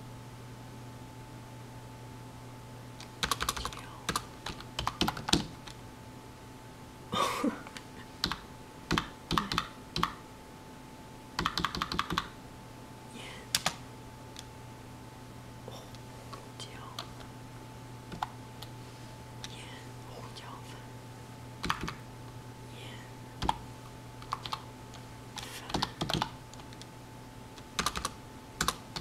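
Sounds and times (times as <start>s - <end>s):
faint steady hum: 0.0s - 29.0s
typing on computer keyboard: 3.1s - 5.8s, 8.2s - 10.2s, 11.4s - 12.3s, 13.5s - 13.8s, 18.1s - 18.3s, 21.6s - 22.0s, 24.2s - 24.6s, 25.7s - 26.9s, 27.6s - 29.0s.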